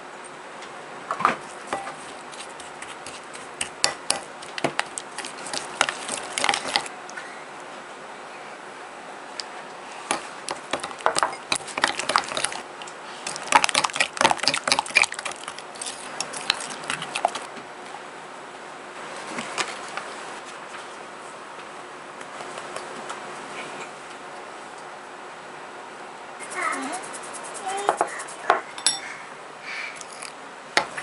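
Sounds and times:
spoon clinking and scraping glass bowl: 3.1 - 6.9, 10.1 - 12.6, 13.3 - 17.4, 28.8 - 29.1.

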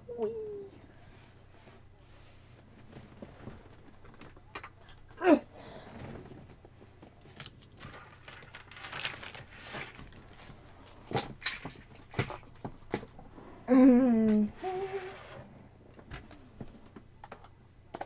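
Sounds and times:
person humming: 0.0 - 0.8, 13.7 - 15.3
objects clicking and rustling: 7.0 - 13.2.

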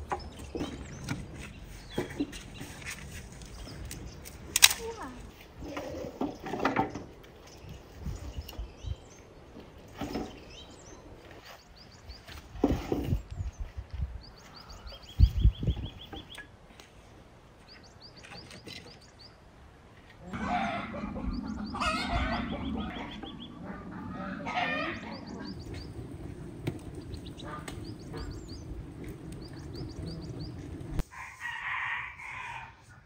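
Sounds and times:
small birds chirping: 0.0 - 20.4, 21.0 - 31.0
hens clucking: 20.2 - 31.0
rooster crowing: 20.3 - 25.5, 31.0 - 33.0.

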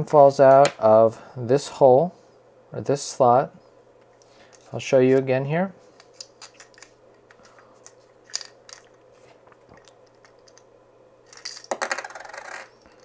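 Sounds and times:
coin clattering on a table: 11.3 - 13.0.

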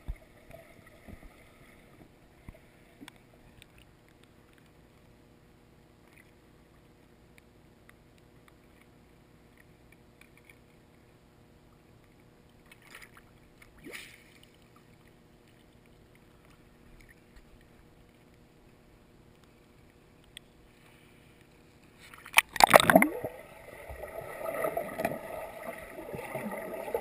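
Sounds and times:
faint steady hum: 0.0 - 27.0
water sloshing: 22.0 - 27.0
rising water gurgle: 22.4 - 27.0.

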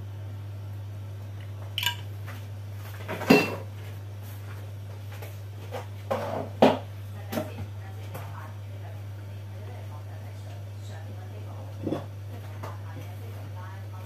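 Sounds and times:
steady low hum: 0.0 - 14.0
kitchenware knocks and clinks: 3.1 - 3.7.

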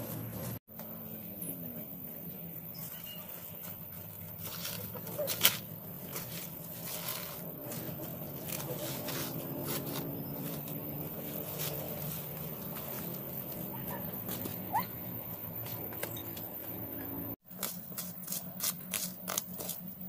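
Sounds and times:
leaves rustling underfoot: 1.9 - 16.8.

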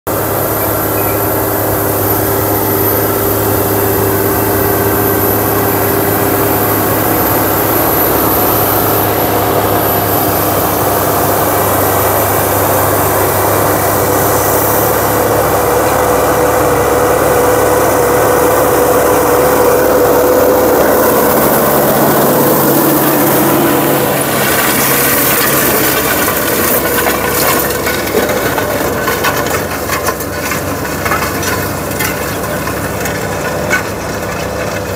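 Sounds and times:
dozer diesel engine running: 0.0 - 34.9
irregular clatter: 24.4 - 34.9.

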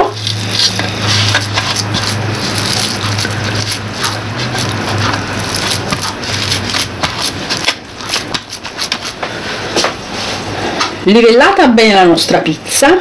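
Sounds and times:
hands squishing minced meat: 0.1 - 9.3.

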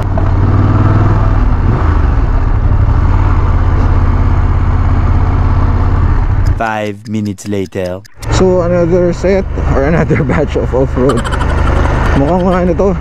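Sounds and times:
road noise: 0.0 - 13.0
wind: 0.0 - 13.0
motorcycle engine running: 8.3 - 13.0.

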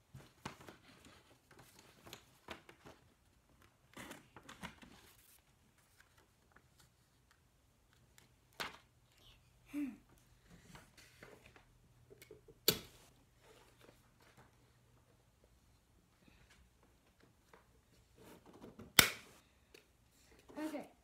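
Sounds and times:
paper rustling: 0.1 - 8.9.

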